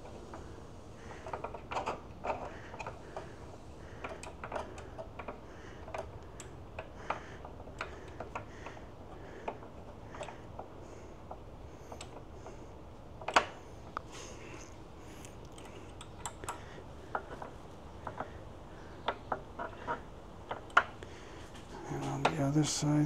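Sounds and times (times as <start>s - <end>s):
allen key turning screws: 1.1s - 3.4s, 4.0s - 12.5s, 13.2s - 13.6s, 15.4s - 18.4s, 19.0s - 21.1s.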